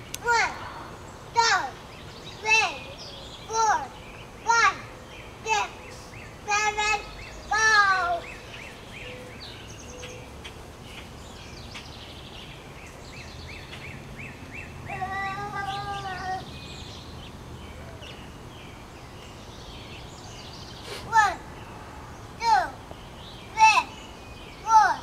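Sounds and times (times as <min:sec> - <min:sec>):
small birds chirping: 0:00.0 - 0:25.0
child calling out: 0:00.2 - 0:00.7, 0:01.3 - 0:01.8, 0:03.5 - 0:03.9, 0:04.5 - 0:04.9, 0:06.5 - 0:08.3, 0:14.9 - 0:16.5, 0:21.0 - 0:21.4, 0:22.4 - 0:22.8, 0:23.6 - 0:23.9, 0:24.6 - 0:25.0.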